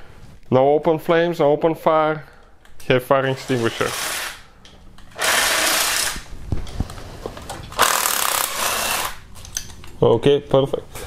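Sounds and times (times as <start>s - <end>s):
power ratchet running: 3.6s - 4.4s, 5.1s - 6.3s, 7.8s - 9.2s.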